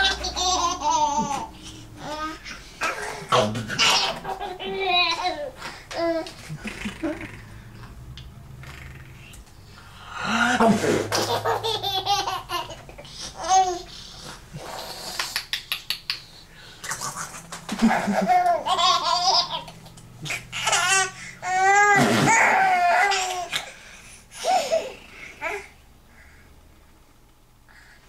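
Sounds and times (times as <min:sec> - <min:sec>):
baby giggling: 0:00.0 - 0:07.5, 0:10.6 - 0:13.9, 0:17.0 - 0:23.6.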